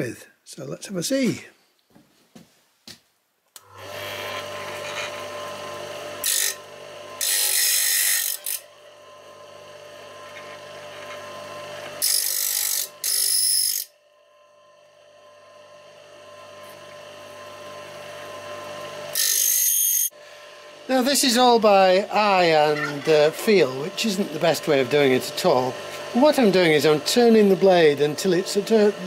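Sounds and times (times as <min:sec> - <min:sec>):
grinder motor hum: 0:03.6 - 0:29.0
saw teeth grinding on wheel: 0:06.2 - 0:08.7, 0:10.2 - 0:13.9, 0:19.1 - 0:20.1.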